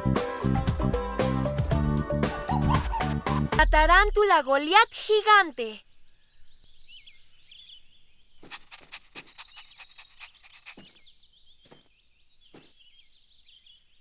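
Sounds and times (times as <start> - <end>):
birds chirping: 3.6 - 14.0.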